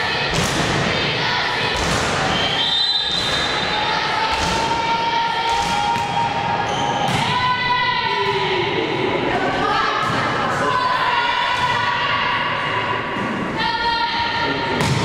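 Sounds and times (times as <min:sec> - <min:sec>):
people shouting: 0:00.0 - 0:08.8, 0:09.4 - 0:13.0
volleyball hit slaps: 0:00.3 - 0:00.9, 0:01.6 - 0:03.6, 0:04.3 - 0:07.3, 0:14.8 - 0:15.0.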